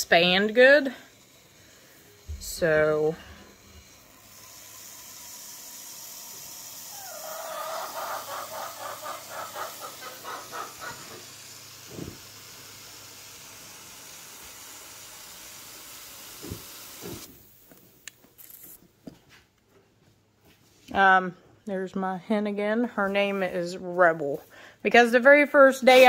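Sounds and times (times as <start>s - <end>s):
spray foam can hissing: 3.9s - 17.6s
hen clucking: 6.9s - 11.2s.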